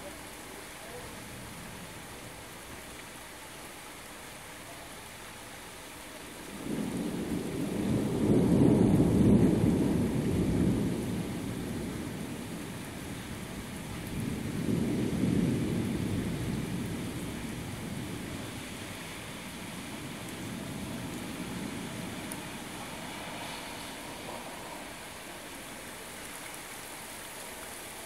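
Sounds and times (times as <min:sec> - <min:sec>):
steady rain: 0:00.0 - 0:28.0
thunder rumbling: 0:06.5 - 0:25.5.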